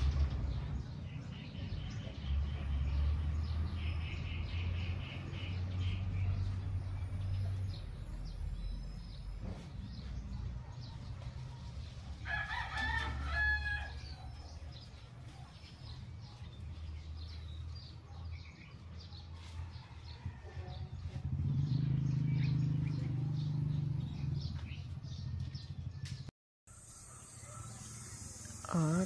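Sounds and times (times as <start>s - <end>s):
small birds chirping: 0.0s - 29.0s
rooster crowing: 12.2s - 14.3s.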